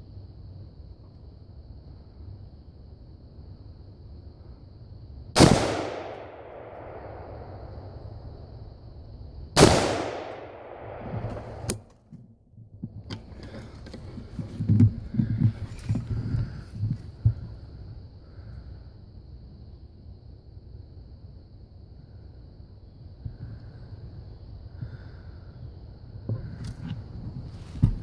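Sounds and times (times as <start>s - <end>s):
rifle shots with echo: 5.4s - 7.9s, 9.6s - 11.8s.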